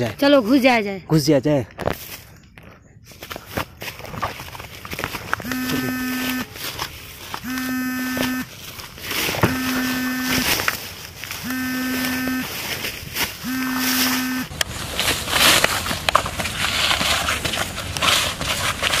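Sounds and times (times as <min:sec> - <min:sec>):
electronic buzzing tone: 0:05.4 - 0:06.6, 0:07.4 - 0:08.6, 0:09.4 - 0:10.7, 0:11.4 - 0:12.7, 0:13.4 - 0:14.5.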